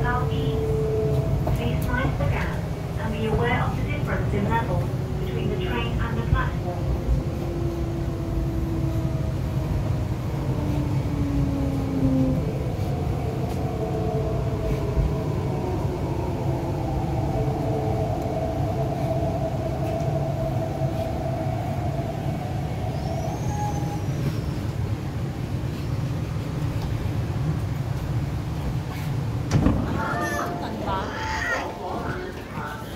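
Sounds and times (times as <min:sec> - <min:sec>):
train running rumble: 0:00.0 - 0:32.9.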